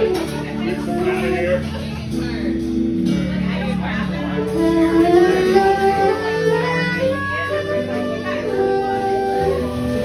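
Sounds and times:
soprano saxophone melody: 0.0 - 1.9, 4.4 - 10.0
electric guitar accompaniment: 0.0 - 10.0.

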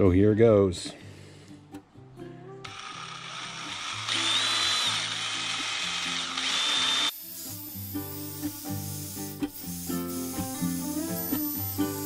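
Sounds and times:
background music with plucked guitar: 0.0 - 4.1, 7.1 - 12.0
cordless drill motor whine: 2.6 - 7.2.

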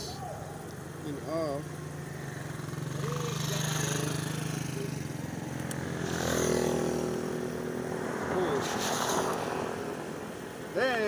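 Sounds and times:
motorcycle engine passing by: 0.0 - 11.0.

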